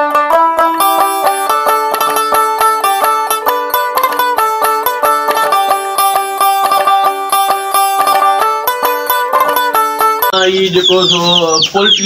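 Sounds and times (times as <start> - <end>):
fast plucked string tune: 0.0 - 11.0.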